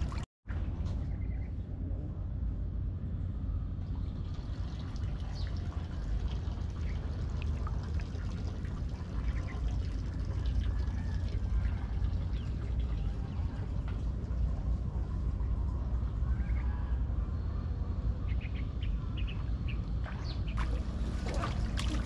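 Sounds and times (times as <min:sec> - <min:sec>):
water pouring and splashing: 0:00.0 - 0:00.3, 0:03.9 - 0:15.0, 0:20.0 - 0:22.0
steady low rumble: 0:00.0 - 0:22.0.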